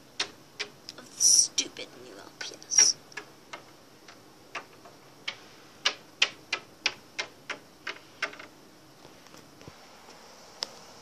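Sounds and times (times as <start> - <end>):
toy figure tapping on wood: 2.8 - 8.5.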